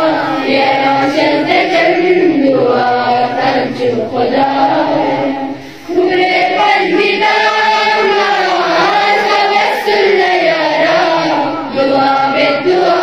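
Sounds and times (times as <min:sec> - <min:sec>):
choral chant-like singing: 0:00.0 - 0:13.0.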